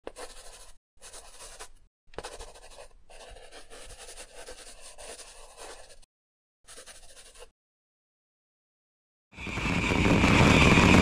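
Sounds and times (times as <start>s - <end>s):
pen scratching on paper: 0.1s - 6.1s, 6.7s - 7.5s.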